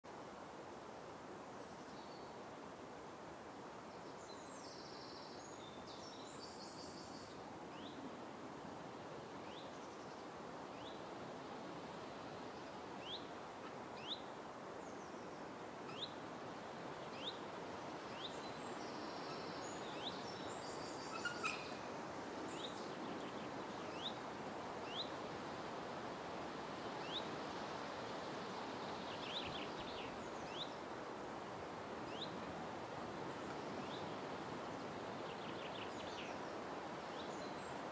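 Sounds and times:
bird chirping: 18.2 - 21.8.

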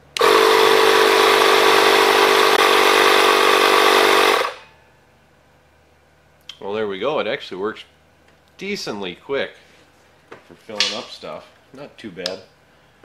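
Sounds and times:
air compressor pump running: 0.0 - 4.7.

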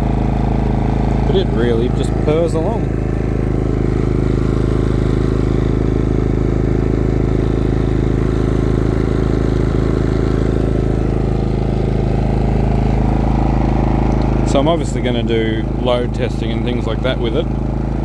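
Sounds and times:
generator engine purring: 0.0 - 18.0.

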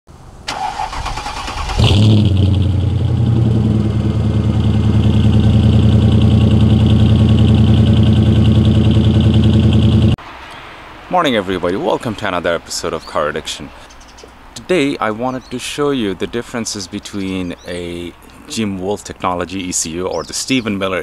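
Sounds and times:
car engine idling: 0.2 - 10.2
car starter cranking: 0.5 - 3.8.

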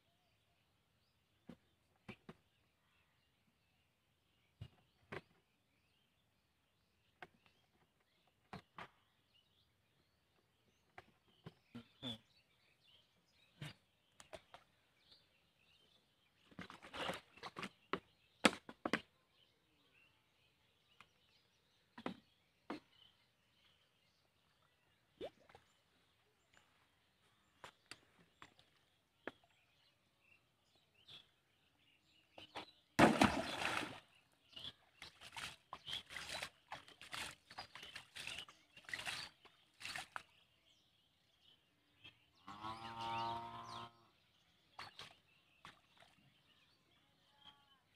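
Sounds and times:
birdsong: 0.0 - 47.9
water splashing: 33.0 - 34.2, 35.0 - 40.2.

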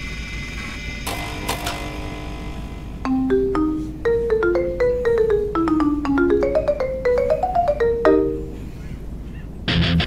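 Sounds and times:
marimba-like melody: 3.0 - 8.7.

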